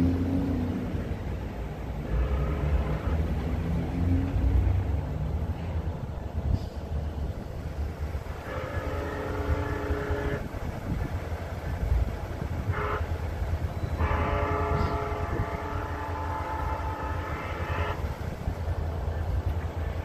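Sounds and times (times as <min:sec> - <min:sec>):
train rumble: 0:00.0 - 0:20.0
train horn blasts: 0:01.9 - 0:04.8, 0:08.0 - 0:11.3, 0:12.1 - 0:18.5.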